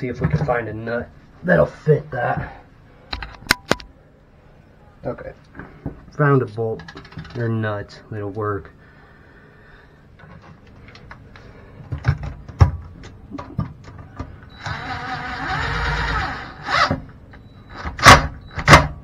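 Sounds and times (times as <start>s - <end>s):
cordless drill running: 14.6s - 17.0s.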